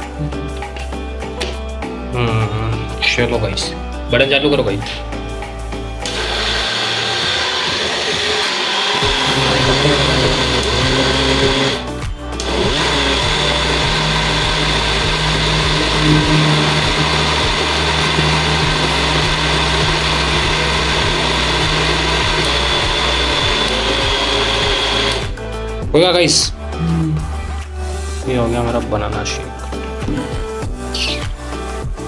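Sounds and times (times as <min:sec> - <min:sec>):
mixer grinder running: 0:06.0 - 0:25.4.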